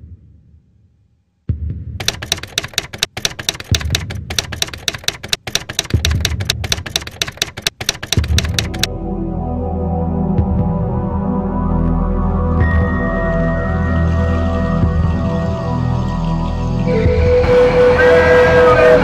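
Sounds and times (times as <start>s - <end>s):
typewriter key clicks: 2.0s - 8.9s
ambient music: 8.2s - 19.0s.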